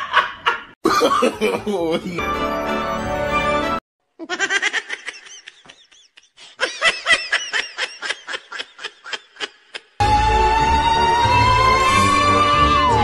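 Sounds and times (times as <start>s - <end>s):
music: 1.8s - 3.8s, 10.0s - 13.0s
high-pitched laughter: 4.2s - 10.0s.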